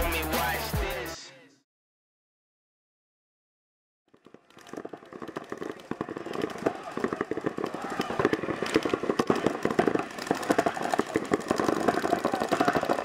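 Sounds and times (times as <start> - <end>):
paintball markers firing: 4.1 - 13.0.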